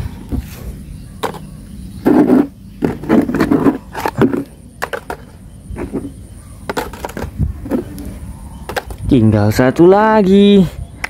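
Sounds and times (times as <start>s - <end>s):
plastic toys clattering: 1.2s - 7.9s, 8.6s - 9.1s.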